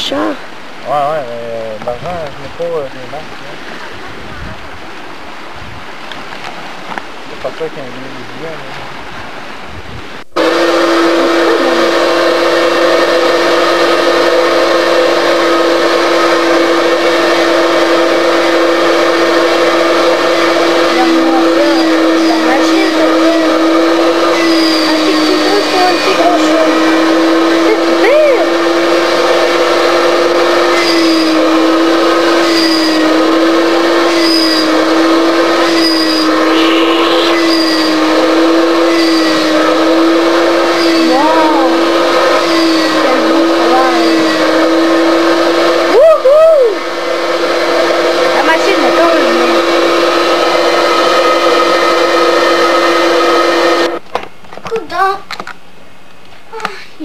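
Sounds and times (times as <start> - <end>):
electric device motor whining: 10.3 - 46.0, 46.6 - 54.0
faint high chirp: 36.4 - 37.6.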